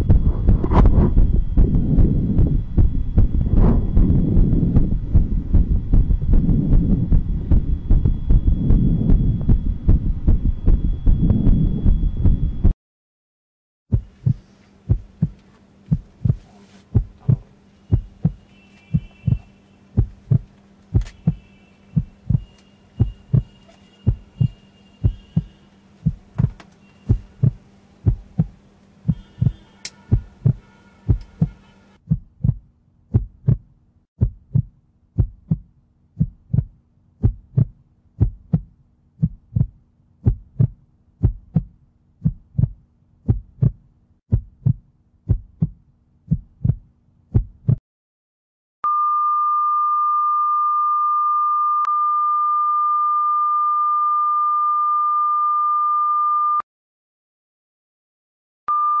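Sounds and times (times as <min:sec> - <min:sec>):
faint hum: 0:00.0 - 0:12.8, 0:13.9 - 0:32.0
heartbeat pulse: 0:00.0 - 0:12.8, 0:13.9 - 0:47.8.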